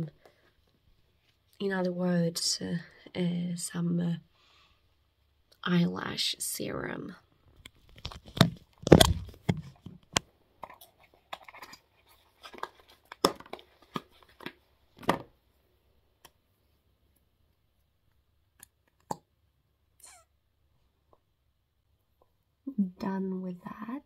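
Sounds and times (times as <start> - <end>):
cardboard box rustling and tearing: 8.0 - 9.8.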